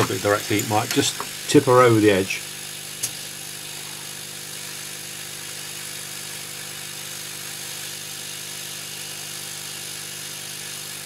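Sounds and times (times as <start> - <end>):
fan humming: 0.0 - 5.6
hot air gun hissing: 0.0 - 11.0.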